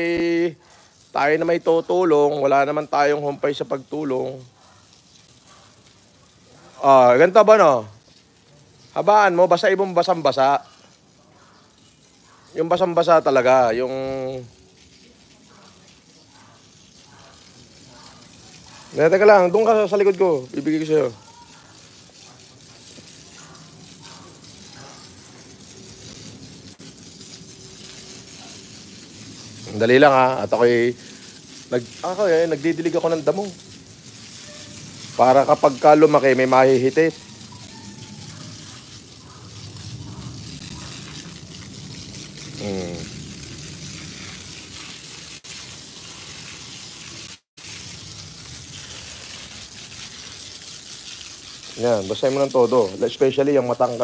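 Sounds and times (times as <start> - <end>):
hose water spraying on grass: 0.0 - 54.0.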